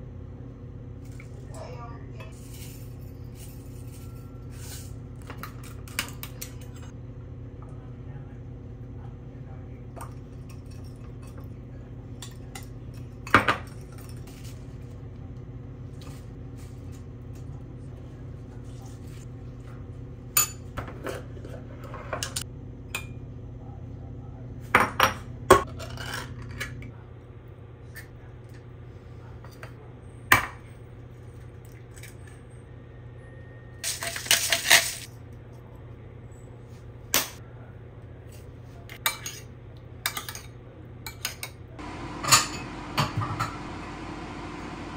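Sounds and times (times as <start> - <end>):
low hum: 41.8 - 44.9.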